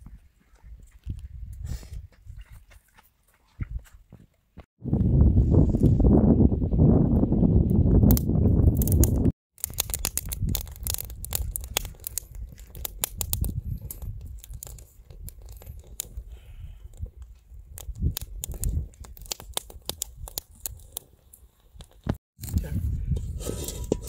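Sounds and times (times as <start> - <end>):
tearing with sharp crackles: 8.8 - 16.2.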